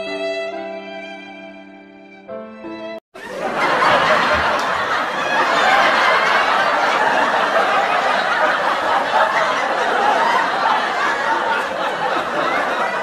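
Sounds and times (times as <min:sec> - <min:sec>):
people laughing: 0:03.2 - 0:13.0.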